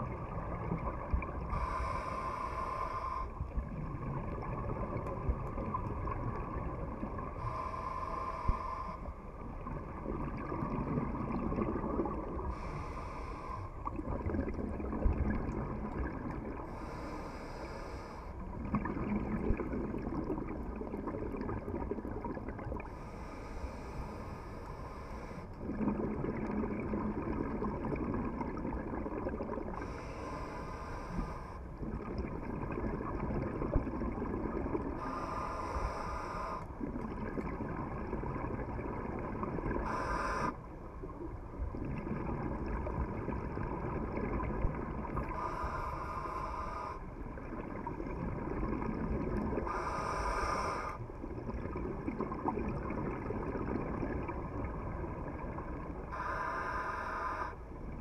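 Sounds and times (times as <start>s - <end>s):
exhaled bubbles rumbling: 0.0s - 2.2s, 3.2s - 7.7s, 8.4s - 17.0s, 18.4s - 23.0s, 25.5s - 50.3s, 51.0s - 56.4s
regulator hiss on inhale: 1.5s - 3.4s, 7.4s - 9.3s, 12.4s - 13.9s, 16.6s - 18.5s, 22.8s - 25.6s, 29.7s - 31.8s, 34.9s - 36.8s, 39.8s - 41.2s, 45.2s - 47.3s, 49.6s - 51.2s, 56.0s - 57.8s.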